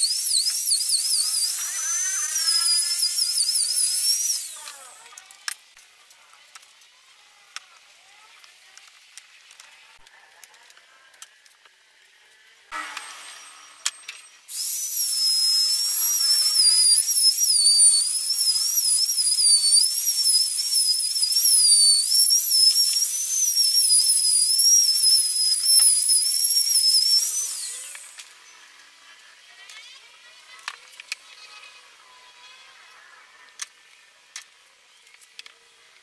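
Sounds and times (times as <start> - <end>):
router cutting wood: 0.0 - 4.8, 12.7 - 28.3.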